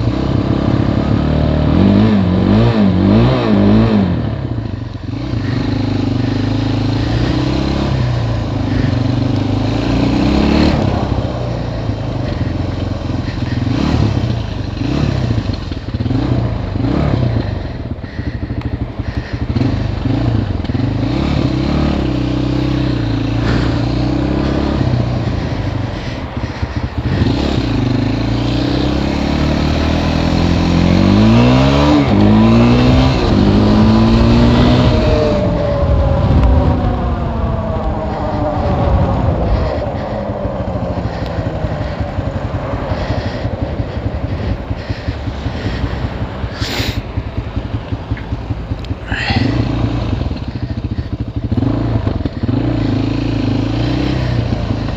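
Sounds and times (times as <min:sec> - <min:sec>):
atv engine revving: 0:00.0 - 0:54.9.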